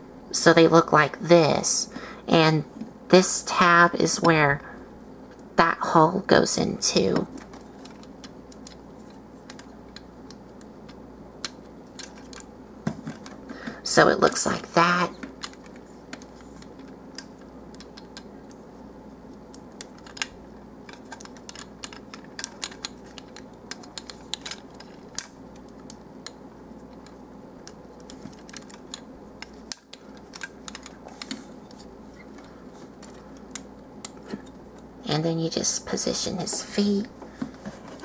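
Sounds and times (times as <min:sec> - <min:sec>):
faint steady hum: 0:00.0 - 0:38.0
plastic toy parts clicking: 0:19.5 - 0:31.4.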